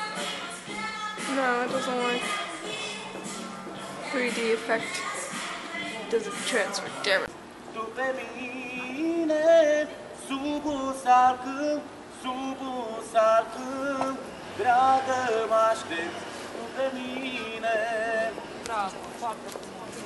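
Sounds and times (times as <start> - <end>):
woman singing slow melody: 0.0 - 3.1.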